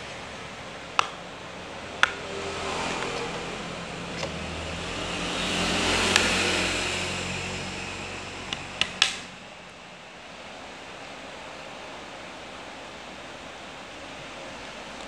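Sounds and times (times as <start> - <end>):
vehicle passing: 1.5 - 9.4.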